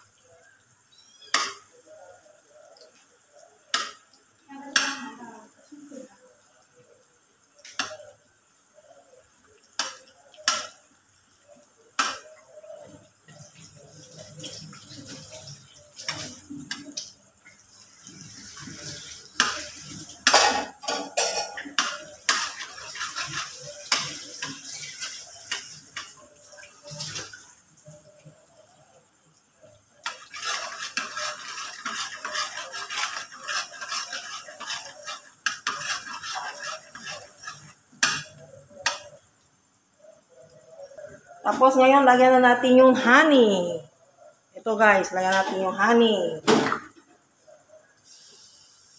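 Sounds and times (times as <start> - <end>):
metal spatula scraping a wok: 18.1 - 27.3, 30.0 - 39.1.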